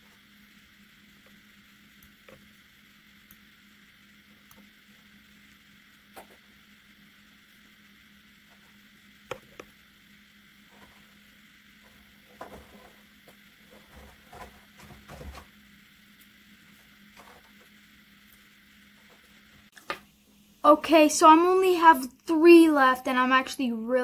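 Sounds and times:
steady low hum: 0.0s - 24.0s
light scratching: 11.8s - 15.5s.

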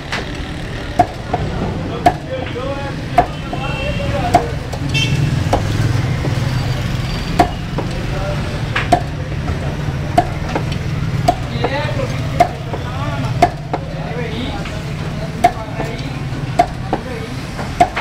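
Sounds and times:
cleaver chopping on wooden block: 1.0s - 2.3s, 3.1s - 4.8s, 5.4s - 6.4s, 7.3s - 8.0s, 8.7s - 9.2s, 10.1s - 13.9s, 15.4s - 15.9s, 16.5s - 18.0s.

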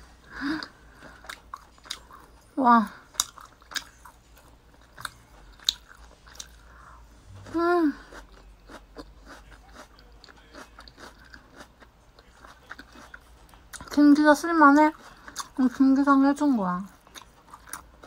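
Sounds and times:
person chewing meat: 0.4s - 2.5s, 3.1s - 6.8s, 7.4s - 13.9s, 14.9s - 15.6s, 16.9s - 18.0s.

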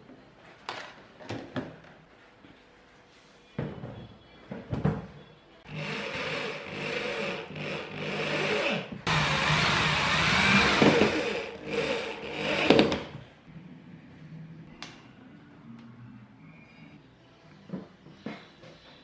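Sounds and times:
electric hand drill boring: 5.7s - 13.1s.

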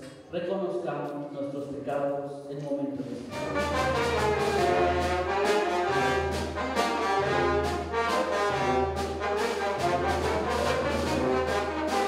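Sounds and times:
brass band playing slow music: 3.1s - 12.0s.

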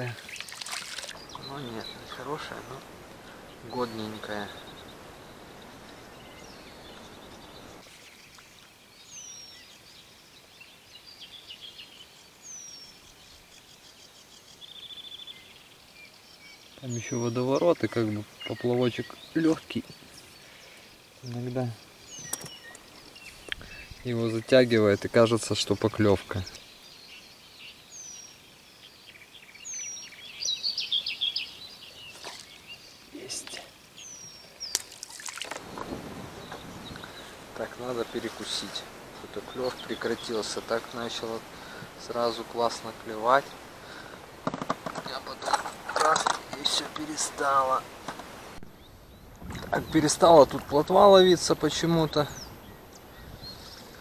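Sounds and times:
falling whistled bird calls: 0.0s - 9.8s, 29.2s - 47.9s
faint steady hiss: 0.0s - 54.0s
small birds chirping: 0.0s - 54.0s.

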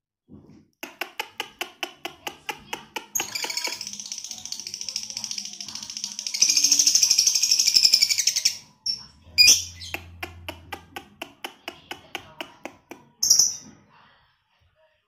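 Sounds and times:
lovebird chattering: 3.1s - 10.2s, 13.2s - 13.6s
sharp high bird chirp: 3.2s - 9.9s.

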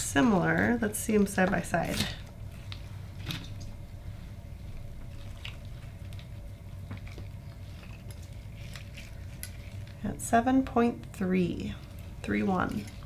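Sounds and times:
steady low hum: 0.0s - 13.0s
person speaking: 10.0s - 13.0s.

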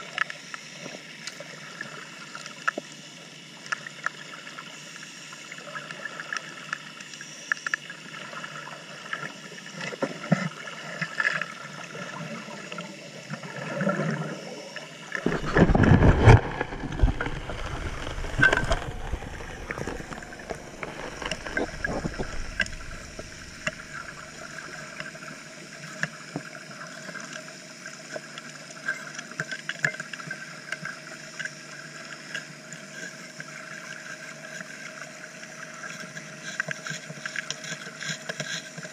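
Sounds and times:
underwater engine and pump hum: 0.0s - 38.9s
stones and gravel clicking: 15.2s - 24.2s
air bubbles rushing: 15.2s - 24.6s.

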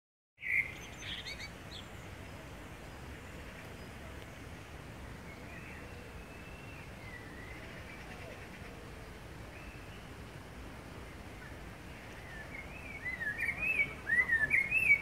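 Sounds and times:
blackbird sharp calls: 0.4s - 2.0s, 11.4s - 15.0s
outdoor background noise: 0.4s - 15.0s
blackbird whistled phrase: 12.3s - 15.0s.

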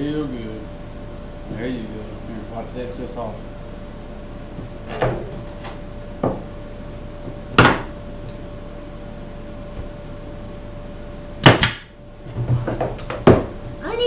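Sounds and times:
nail gun shots: 11.4s - 11.9s.

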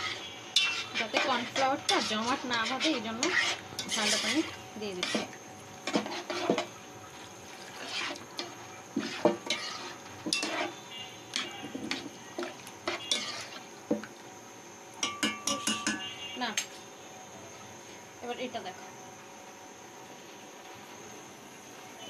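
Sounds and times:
spoon stirring and scraping pan: 0.0s - 14.0s, 15.0s - 16.8s.

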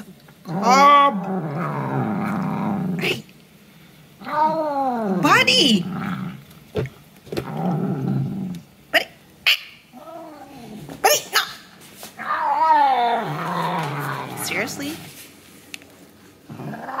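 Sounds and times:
cat growling: 0.4s - 3.2s, 4.2s - 6.4s, 9.9s - 10.9s, 12.2s - 14.8s, 16.5s - 17.0s.

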